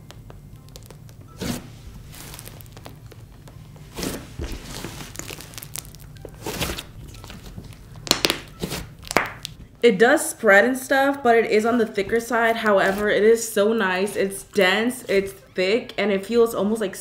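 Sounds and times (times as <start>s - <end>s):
fine crackling sizzle: 0.0s - 9.6s
slime squishing by hand: 0.0s - 9.6s.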